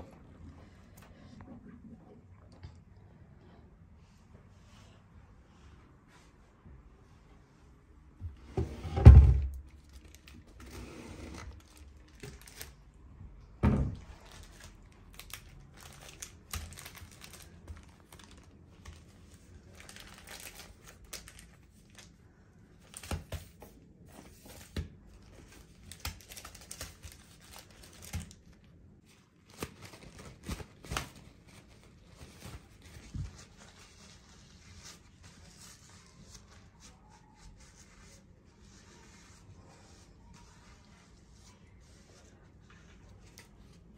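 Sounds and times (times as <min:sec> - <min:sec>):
plastic packet crinkling: 0:09.7 - 0:10.6, 0:11.5 - 0:12.8, 0:14.1 - 0:22.1, 0:25.2 - 0:28.7, 0:29.4 - 0:33.0.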